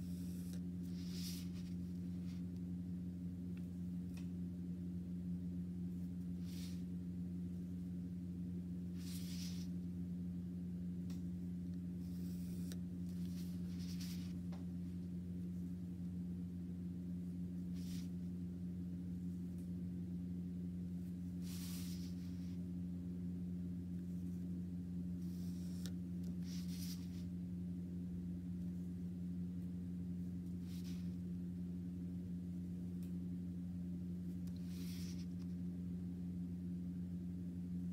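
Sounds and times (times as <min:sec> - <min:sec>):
pencil scratching on paper: 0:00.0 - 0:02.4, 0:09.0 - 0:09.8, 0:12.0 - 0:14.4, 0:21.4 - 0:22.6, 0:25.2 - 0:27.3
low hum: 0:00.0 - 0:37.9.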